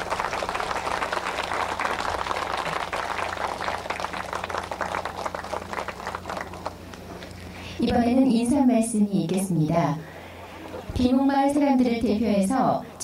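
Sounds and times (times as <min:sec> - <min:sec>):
audience applauding: 0:00.0 - 0:07.3.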